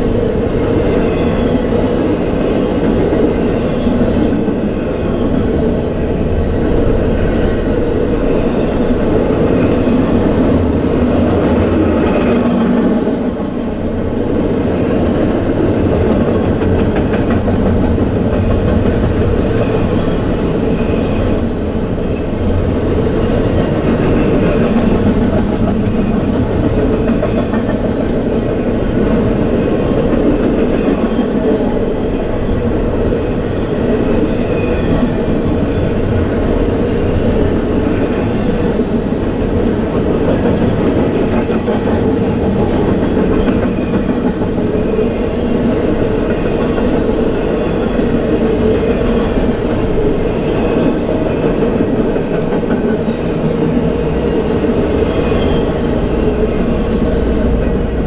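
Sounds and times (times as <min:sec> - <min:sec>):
steel wheels running on rails: 0:00.0 - 0:58.0.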